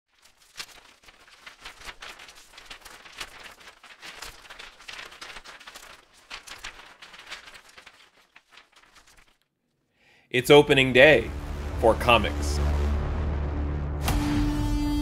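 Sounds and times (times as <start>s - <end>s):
rustling handling noise: 0.1s - 9.5s.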